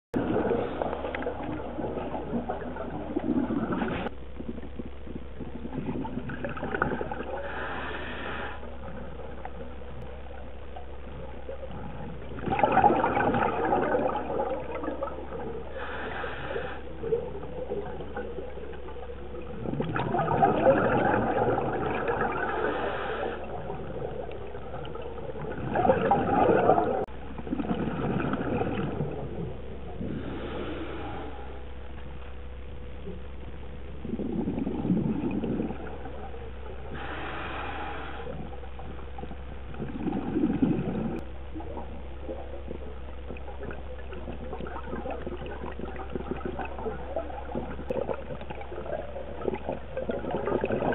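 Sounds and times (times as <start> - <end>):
steady low hum: 0.0 - 50.9
gurgling exhaled bubbles: 0.1 - 31.5, 33.9 - 50.9
regulator inhalation hiss: 7.4 - 8.7, 15.7 - 17.0, 36.9 - 38.5.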